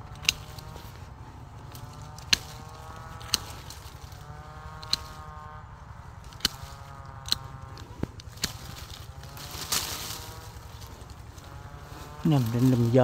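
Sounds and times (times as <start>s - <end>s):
pruning shears snipping stems: 0.0s - 13.0s.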